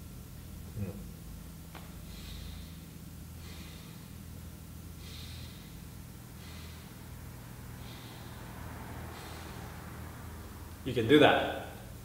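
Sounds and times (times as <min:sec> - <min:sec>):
man breathing through nose: 0:01.9 - 0:10.4.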